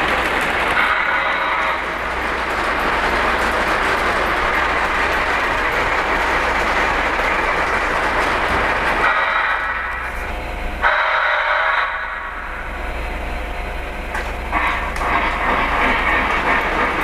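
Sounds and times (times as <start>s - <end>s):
model train wheels rattling on rail: 0.0s - 12.5s, 14.1s - 17.0s.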